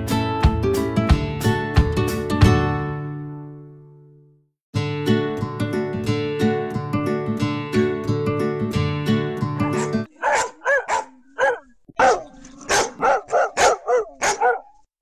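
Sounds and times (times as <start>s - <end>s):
acoustic guitar music: 0.0s - 4.2s, 4.8s - 10.5s
dog barking: 9.6s - 14.8s.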